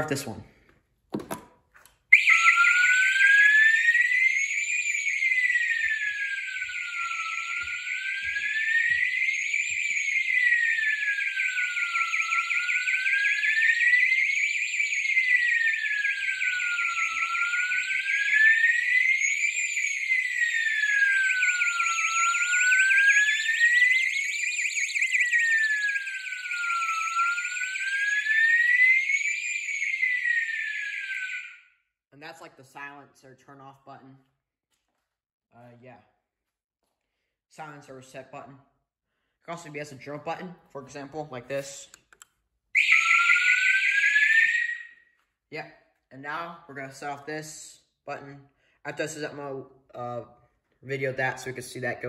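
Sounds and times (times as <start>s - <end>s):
electronic siren wailing: 2.1s - 31.8s, 42.8s - 45.0s.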